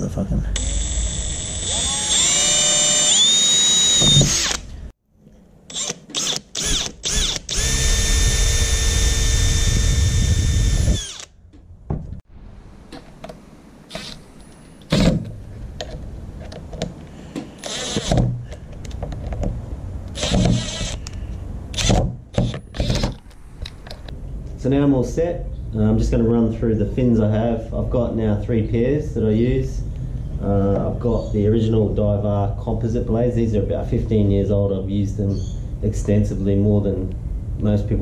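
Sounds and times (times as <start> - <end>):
cordless drill whining: 0.6 - 4.8, 5.7 - 11.3, 17.6 - 18.2, 20.1 - 23.2.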